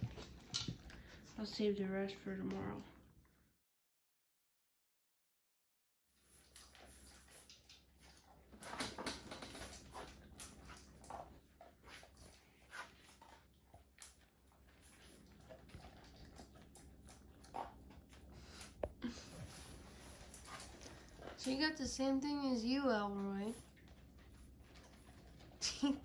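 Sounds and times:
dogs crunching dry kibble: 6.4 - 26.0.

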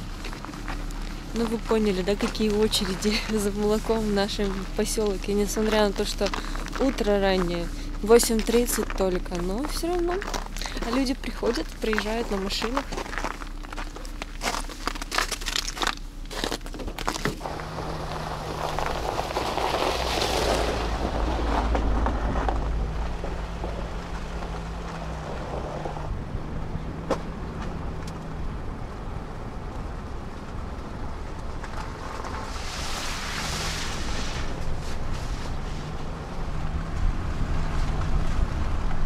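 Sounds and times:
footsteps crunching on snow: 0.0 - 26.0
car engine hum: 0.0 - 39.0
tyre and road noise: 0.0 - 39.0.

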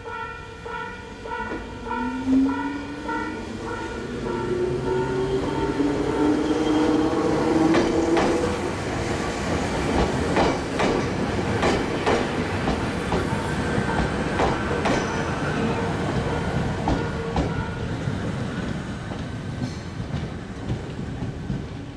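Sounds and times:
train rumble: 1.2 - 21.9
train wheels clacking over rail joints: 7.6 - 8.6, 9.4 - 21.9.

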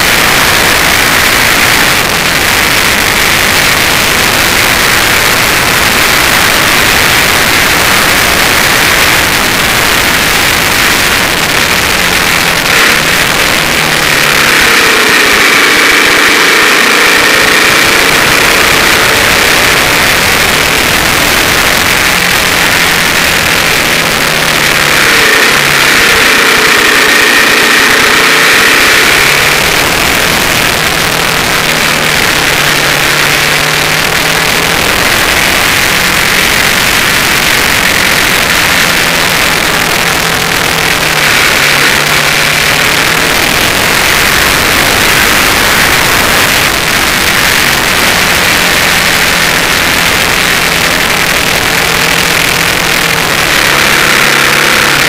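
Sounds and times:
heavy wind rush: 0.0 - 55.0
motorcycle engine pulling hard: 0.0 - 55.0.

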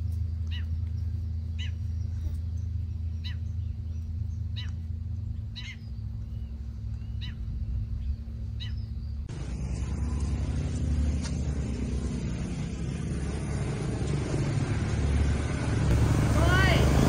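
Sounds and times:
bird chirps: 0.0 - 10.4
vehicle engine rumbling: 0.0 - 17.0
loud rushing noise: 9.3 - 17.0.

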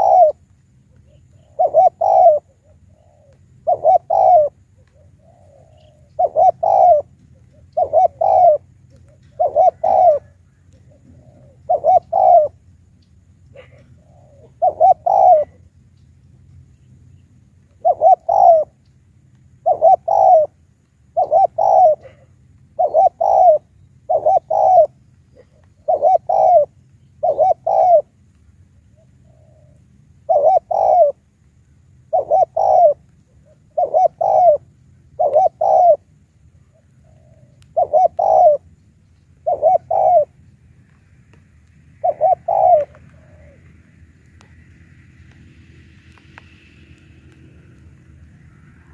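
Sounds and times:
dove cooing: 0.0 - 12.6, 13.5 - 15.7, 17.7 - 18.8, 19.6 - 28.2, 28.9 - 31.2, 32.1 - 38.7, 39.4 - 40.5, 42.0 - 43.8.

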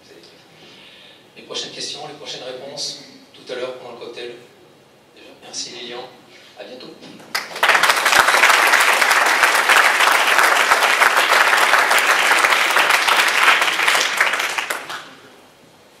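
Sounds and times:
audience applauding: 7.3 - 15.2.

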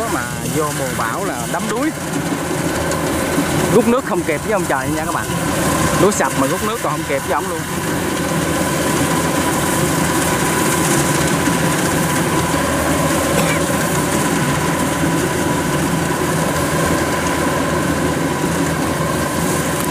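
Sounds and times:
combine harvester engine drone: 0.0 - 19.9
steady high whine: 0.0 - 19.9.

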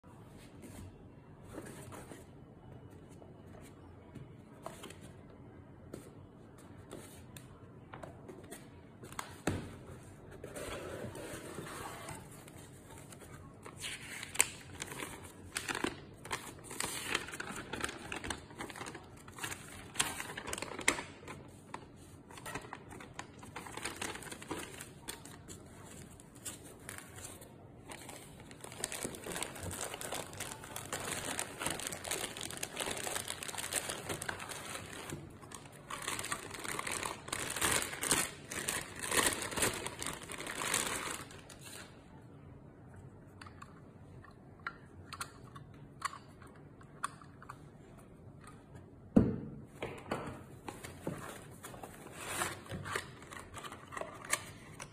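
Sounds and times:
cardboard packaging rustling: 10.4 - 41.8
plastic wrapping crinkling: 13.9 - 21.5, 22.2 - 41.9.

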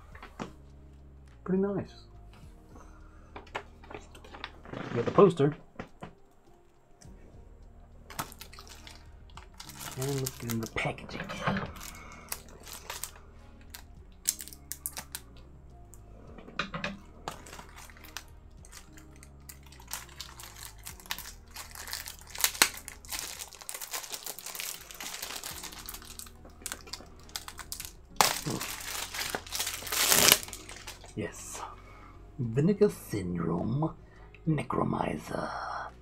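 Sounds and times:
packaging crinkling and rustling: 8.1 - 15.3, 16.7 - 31.2.

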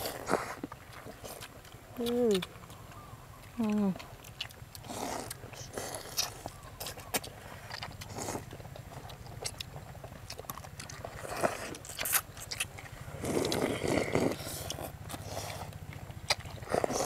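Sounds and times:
steady low hum: 0.0 - 17.0
people slurping noodles: 4.8 - 6.5, 13.1 - 15.7, 16.6 - 17.0.

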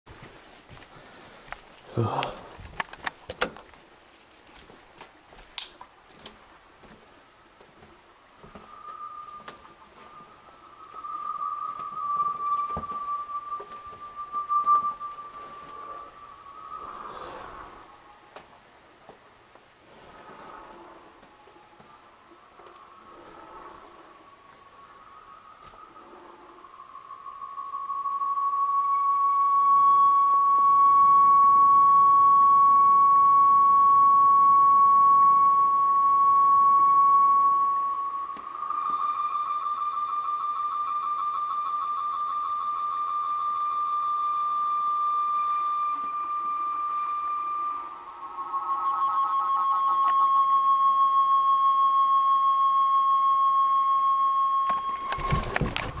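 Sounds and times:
sharp crackling clicks: 2.5 - 3.8, 5.5 - 5.9
high-pitched electronic tone: 8.5 - 18.2, 22.6 - 56.0.

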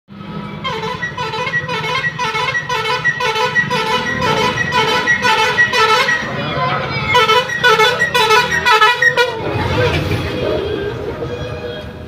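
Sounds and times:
repeating high electronic tune: 1.0 - 9.4.

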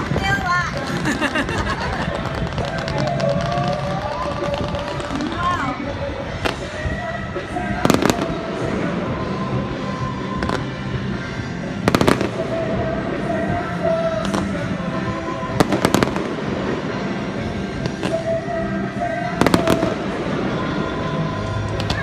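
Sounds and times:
music: 0.0 - 22.0
fireworks bangs: 2.1 - 5.4, 11.8 - 13.0, 15.5 - 18.4, 19.3 - 21.1.

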